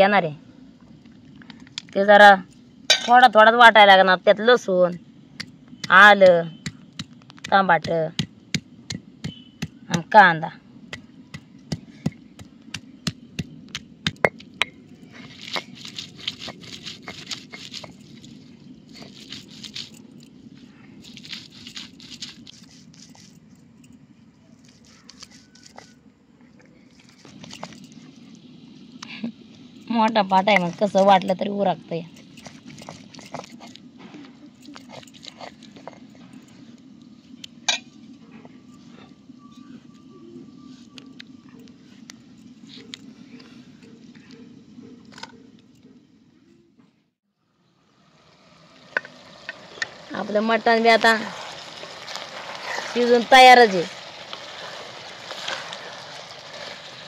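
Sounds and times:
stone roller grinding: 10.9s - 20.0s, 32.1s - 33.8s, 48.9s - 57.0s
wet scrapes and clicks: 21.0s - 23.4s.

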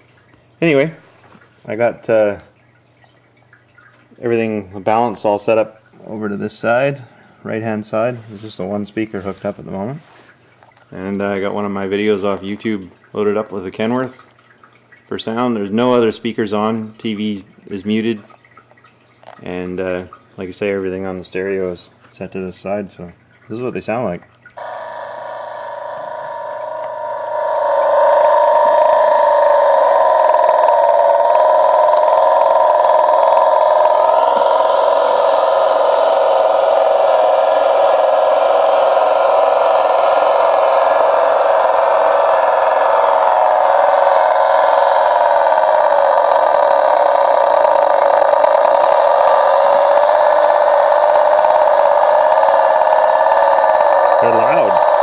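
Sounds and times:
tinny truck engine through small speaker: 24.6s - 55.0s.

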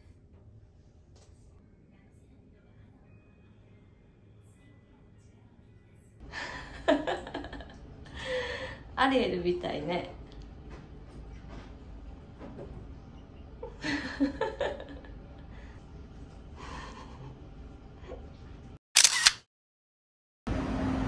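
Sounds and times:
camera shutter click: 19.0s - 19.4s.

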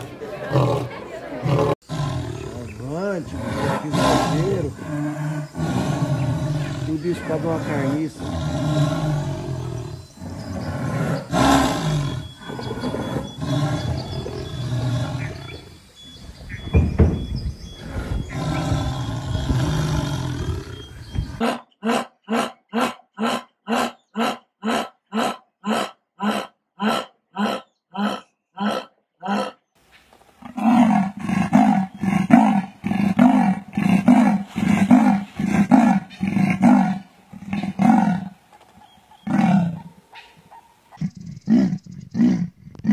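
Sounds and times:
jaguar growling and roaring: 0.0s - 15.7s, 17.7s - 29.6s, 30.4s - 38.4s, 39.2s - 40.0s, 41.0s - 42.9s
jaguar short grunts: 0.6s - 9.4s.

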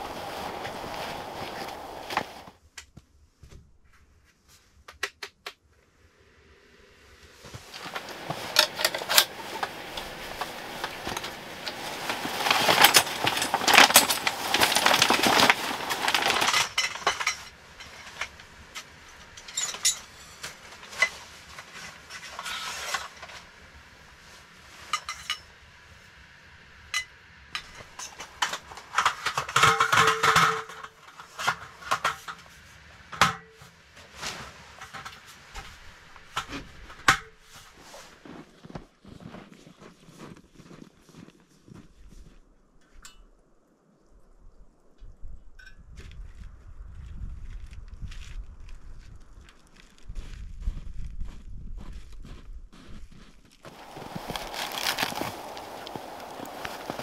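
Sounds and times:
fabric rustling: 0.0s - 2.5s, 7.4s - 18.4s, 34.0s - 36.8s, 53.6s - 57.0s
metal clicks of folding chair: 7.8s - 15.4s
aluminium slats clinking and rattling: 7.8s - 21.2s, 27.0s - 32.4s.

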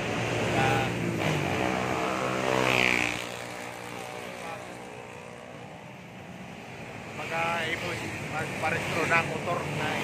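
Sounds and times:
background traffic: 0.0s - 10.0s.

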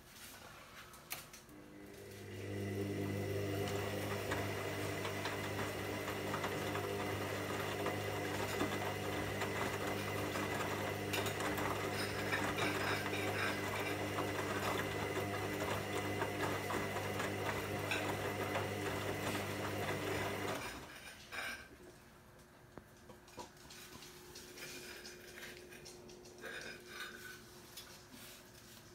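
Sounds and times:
washing machine motor hum: 1.5s - 20.9s.

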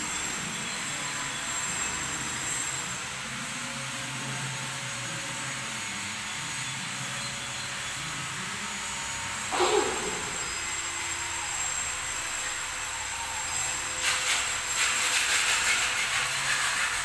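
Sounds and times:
broom sweeping concrete floor: 9.5s - 10.7s, 14.0s - 17.0s.

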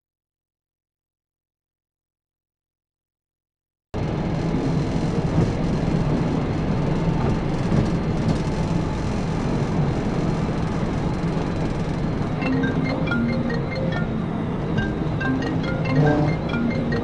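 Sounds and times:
road wind and engine noise: 4.0s - 17.0s
plinking mallet-like music: 12.4s - 17.0s.

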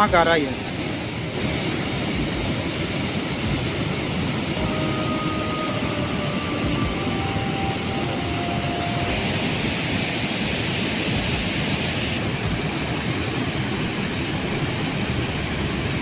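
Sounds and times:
waterfall roaring over rocks: 0.0s - 16.0s.

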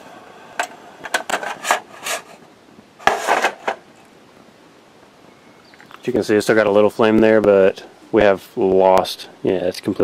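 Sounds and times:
metal clattering on concrete: 3.0s - 3.8s.

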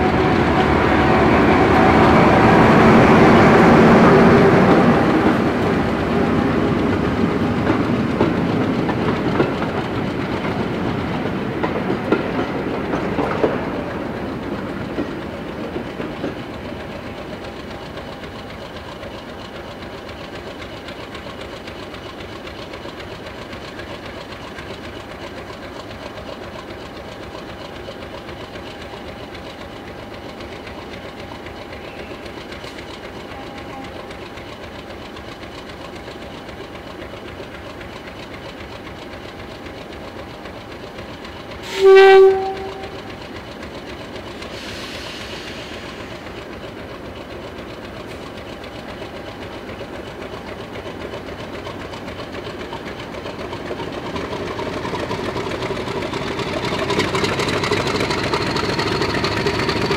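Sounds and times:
locomotive horn blast: 0.0s - 5.0s, 41.6s - 43.2s
diesel locomotive engine idling: 0.0s - 59.9s.

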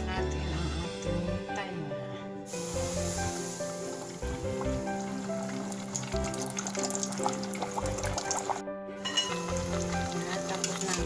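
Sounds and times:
background music with held notes: 0.0s - 11.0s
oil frying in a pot: 2.5s - 11.0s.

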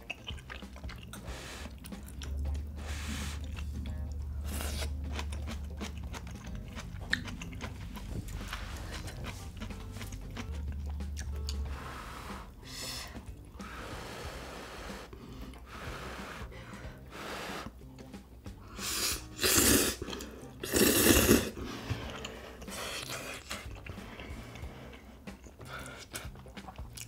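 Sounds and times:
chewing: 0.0s - 13.8s, 18.1s - 27.0s
person slurping noodles: 1.1s - 1.9s, 4.4s - 5.2s, 11.6s - 17.8s, 18.7s - 26.8s.

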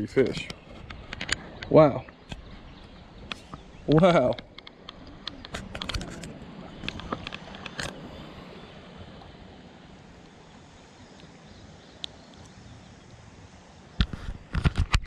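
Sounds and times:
water and wind noise: 0.0s - 15.0s
handling clicks and knocks: 3.2s - 8.0s.

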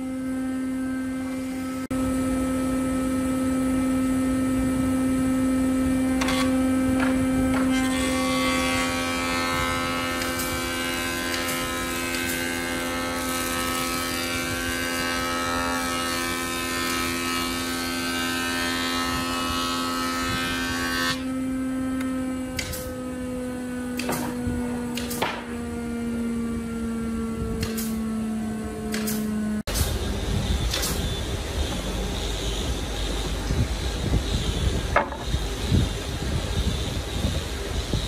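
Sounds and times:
jointer planing board: 0.0s - 38.0s
machine humming: 0.0s - 38.0s
sharp wooden knocks: 34.9s - 35.3s.

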